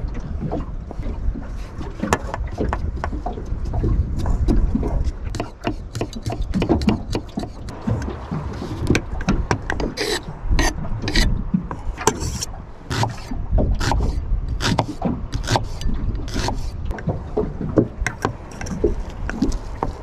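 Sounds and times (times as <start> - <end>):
low steady rumble: 7.6 - 20.0.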